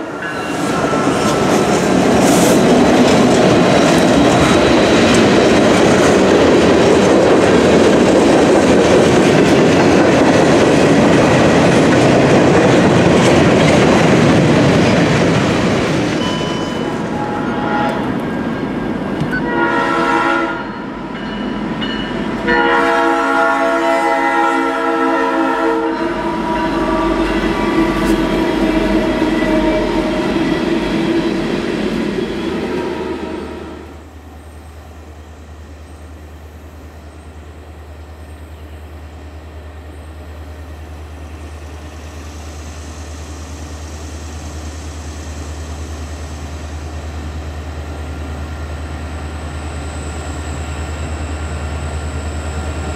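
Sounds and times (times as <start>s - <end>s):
train rumbling: 0.0s - 52.9s
locomotive air horn blasts: 16.5s - 18.2s, 19.3s - 20.9s, 22.4s - 30.6s.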